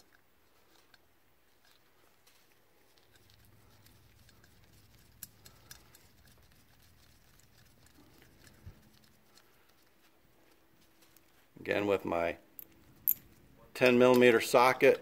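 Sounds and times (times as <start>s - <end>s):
faint clicks of small metal parts: 0.0s - 6.5s, 12.6s - 14.6s.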